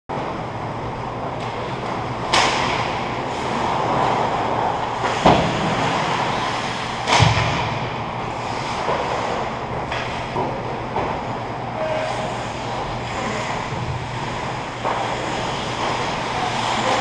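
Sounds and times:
skates scraping on ice: 3.2 - 7.3, 8.3 - 17.0
stick and puck knocks: 7.0 - 7.8.

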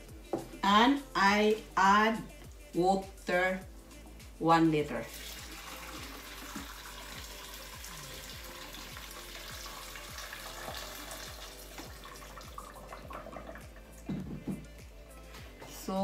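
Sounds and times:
water pouring into a pot: 5.1 - 14.1.

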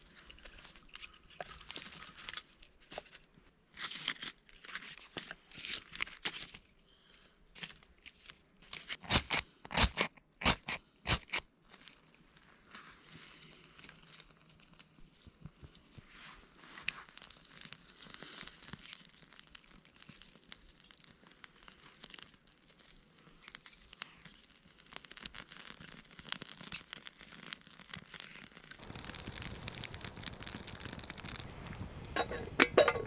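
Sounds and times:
small fire crackling: 0.0 - 33.0
sticks laid on fire: 28.8 - 33.0.

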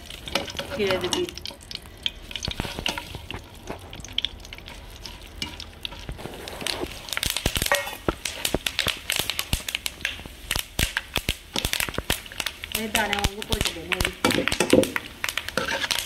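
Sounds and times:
seeds sizzling in hot fat: 0.0 - 16.0
seeds popping with sharp crackles: 6.0 - 16.0.

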